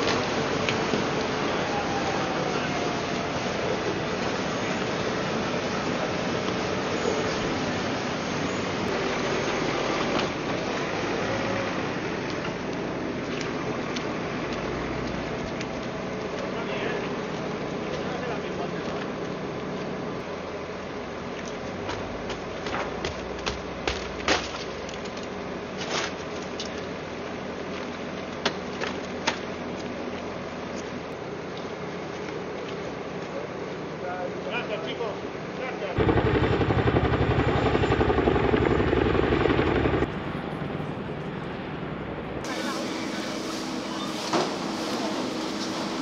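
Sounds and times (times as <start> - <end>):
steady background noise: 0.0 - 46.0
street noise: 0.0 - 46.0
tractor engine running: 36.0 - 46.0.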